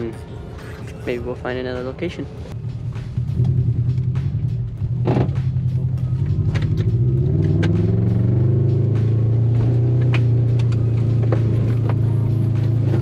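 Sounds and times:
car engine from inside cabin: 0:02.7 - 0:13.0.

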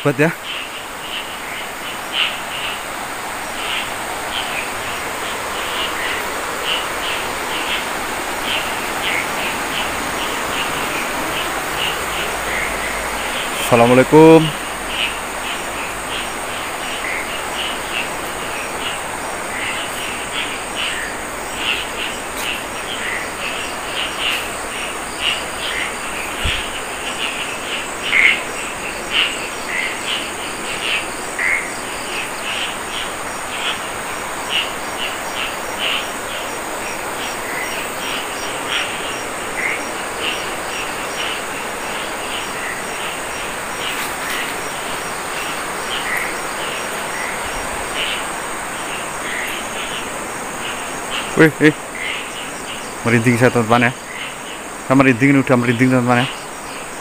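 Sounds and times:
cricket chirps: 0:00.0 - 0:57.0
insects trilling: 0:00.0 - 0:57.0.

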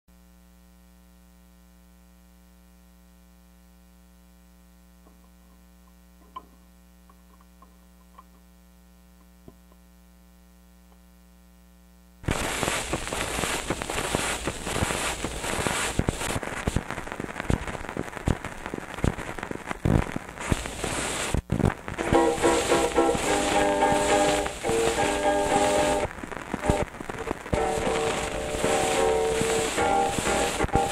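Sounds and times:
record crackling and hiss: 0:00.1 - 0:30.9
record player electrical hum: 0:00.1 - 0:30.9.

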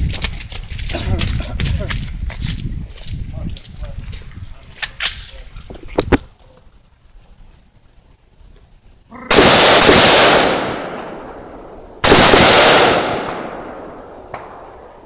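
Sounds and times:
loud rifle shots with echo: 0:09.3 - 0:15.0.

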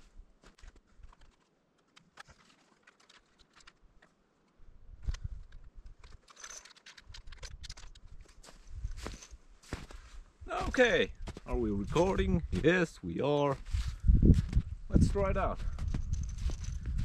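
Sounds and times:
gear clicking and rustling: 0:00.4 - 0:09.9, 0:15.6 - 0:17.0.

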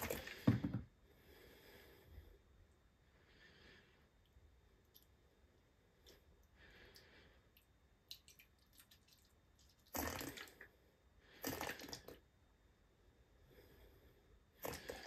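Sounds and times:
liquid trickling: 0:08.1 - 0:10.7.

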